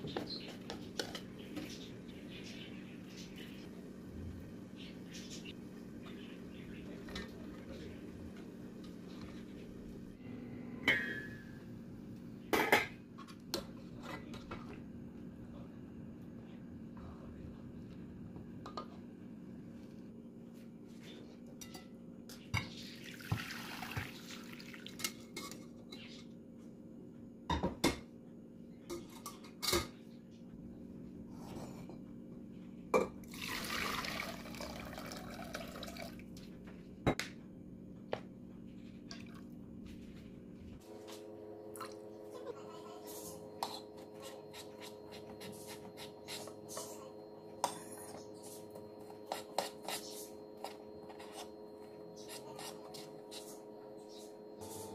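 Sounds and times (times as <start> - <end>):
liquid pouring into pot: 23.0 - 25.0, 33.3 - 36.2.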